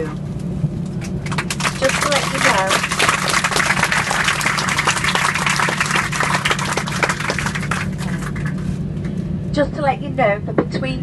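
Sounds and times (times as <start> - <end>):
aircraft cabin hum: 0.0 - 11.0
passengers clapping: 1.0 - 9.2.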